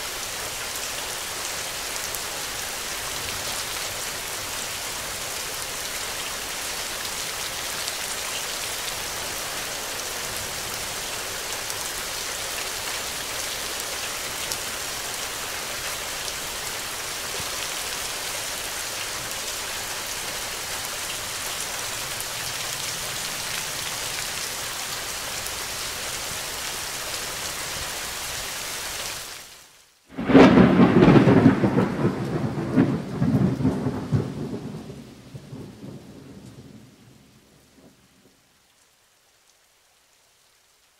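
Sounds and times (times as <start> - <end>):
rain falling: 0.0 - 40.9
thunder rumble: 30.1 - 38.2.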